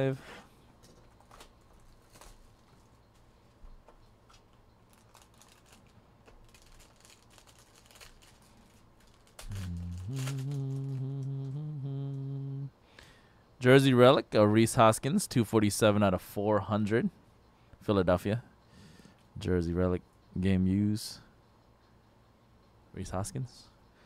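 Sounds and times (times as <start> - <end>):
foil wrapper crinkling: 0.8 - 3.6, 4.3 - 11.1
man humming: 9.4 - 12.8.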